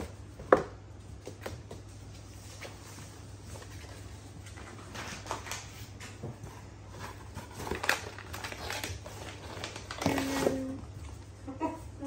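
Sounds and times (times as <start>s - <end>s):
plastic pouches crinkling: 7.2s - 10.8s.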